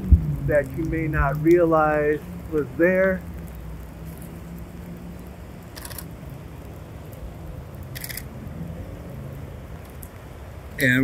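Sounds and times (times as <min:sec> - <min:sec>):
low background rumble: 0:00.0 - 0:11.0
camera shutter clack: 0:05.8 - 0:06.0, 0:08.0 - 0:08.2.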